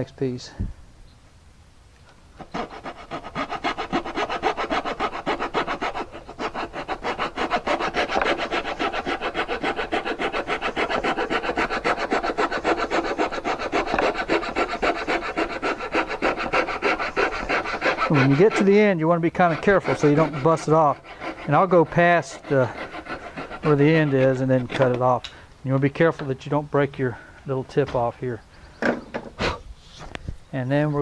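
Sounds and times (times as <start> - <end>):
coping saw rasping strokes: 2.4 - 25.3.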